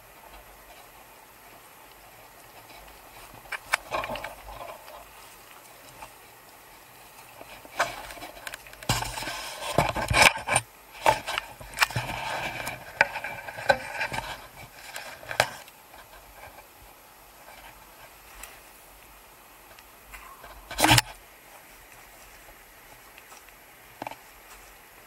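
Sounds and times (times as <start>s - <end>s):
footsteps on grass and rock: 0.0s - 10.0s, 11.1s - 25.0s
rubbing near microphone: 7.4s - 16.7s.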